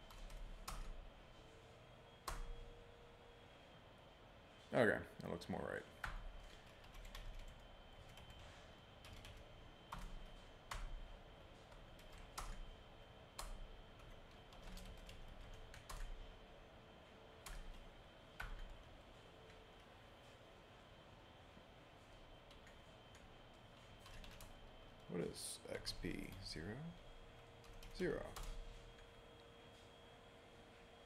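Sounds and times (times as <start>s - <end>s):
slow keyboard typing: 0.0s - 1.0s, 2.2s - 2.7s, 6.0s - 12.8s, 13.4s - 16.3s, 17.4s - 19.6s, 22.4s - 25.1s, 27.6s - 29.1s.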